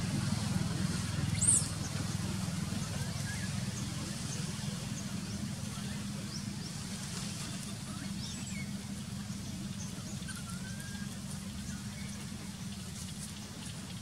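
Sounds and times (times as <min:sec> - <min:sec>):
low outdoor rumble: 0:00.0 - 0:14.0
faint high chirps and whistles: 0:09.8 - 0:12.2.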